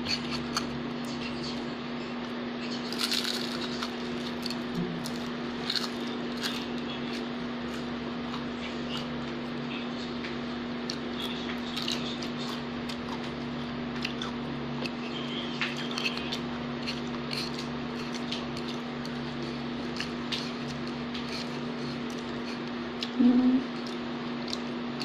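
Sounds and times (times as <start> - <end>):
person chewing food: 0.0 - 1.6, 2.6 - 25.0.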